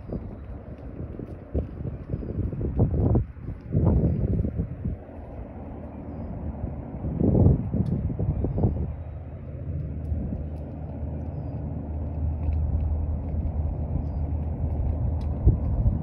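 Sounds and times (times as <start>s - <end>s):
road noise: 0.0s - 16.0s
vehicle rumble: 0.0s - 16.0s.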